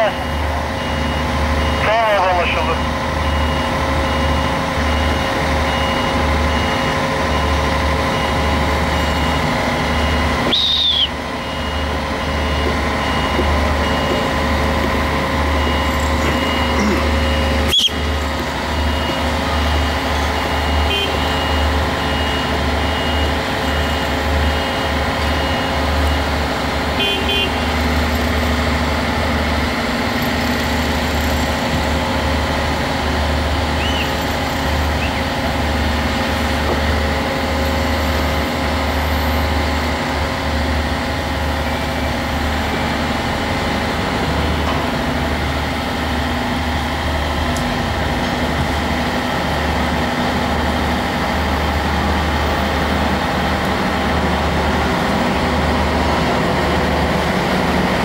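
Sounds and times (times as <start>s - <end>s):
rapid warning beeper: 0.0s - 26.4s
heavy diesel engine droning: 0.0s - 58.0s.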